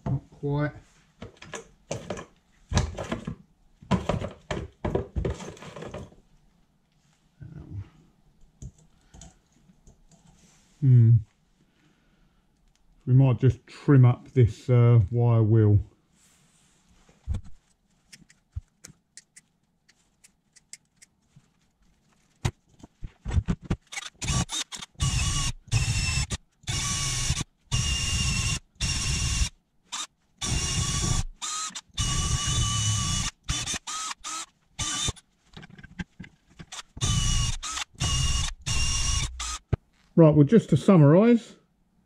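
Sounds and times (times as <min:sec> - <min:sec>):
cordless drill whining: 0:23.9 - 0:35.2, 0:36.7 - 0:39.7.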